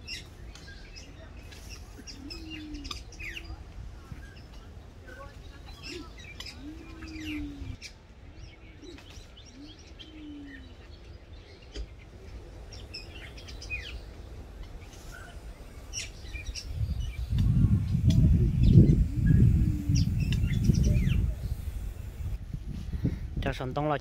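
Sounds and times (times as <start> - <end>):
small birds chirping: 0.0 - 22.4
dove cooing: 1.6 - 3.7, 5.2 - 7.8, 8.8 - 10.8, 17.4 - 22.0.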